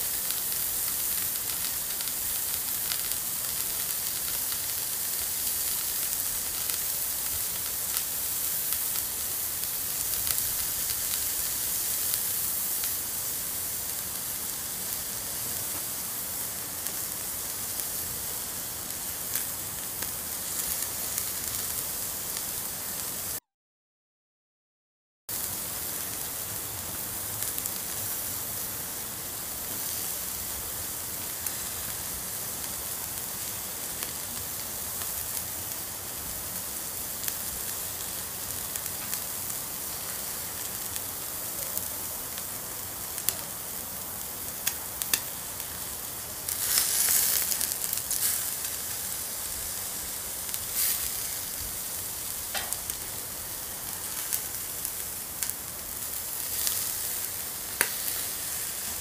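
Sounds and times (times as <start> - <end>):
meat sizzling over charcoal: 0.0 - 23.4, 25.3 - 59.0
sharp pops and crackles: 44.6 - 45.4, 52.4 - 53.2, 57.7 - 58.2.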